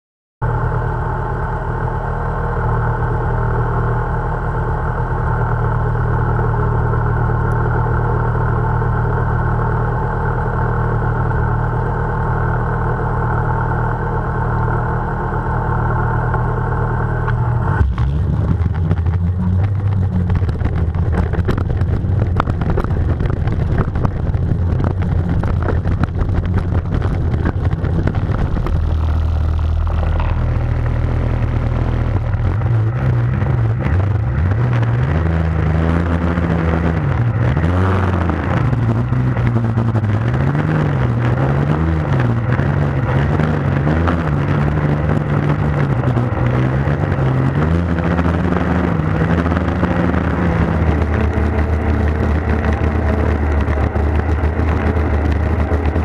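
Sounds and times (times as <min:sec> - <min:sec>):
snowmobile engine idling: 0:00.4 - 0:56.0
camera rattling from vibration: 0:14.8 - 0:56.0.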